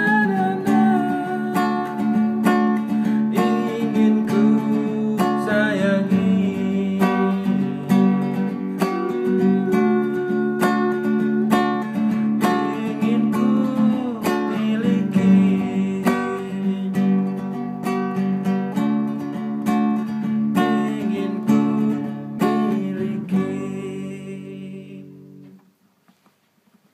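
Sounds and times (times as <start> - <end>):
acoustic guitar strumming chords: 0.0 - 25.7
man humming: 3.3 - 11.8.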